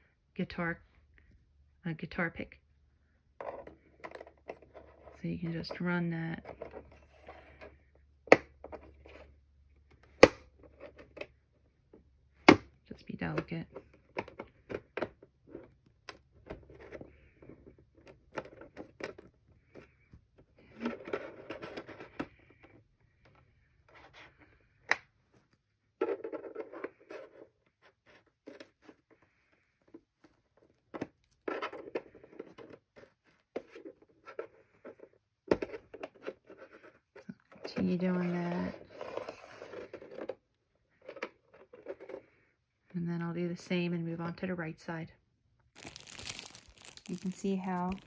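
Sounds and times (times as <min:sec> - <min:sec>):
plastic pry tool scraping: 0:03.4 - 0:11.4, 0:12.4 - 0:40.4, 0:41.0 - 0:42.4.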